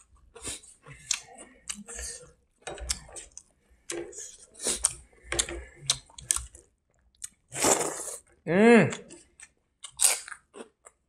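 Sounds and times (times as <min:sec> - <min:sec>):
chewing and lip-smacking: 0:00.3 - 0:07.5.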